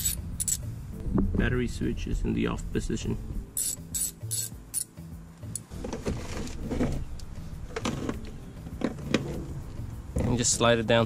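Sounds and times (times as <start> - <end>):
ratchet wrench clicking: 0.0 - 0.7, 3.6 - 4.9.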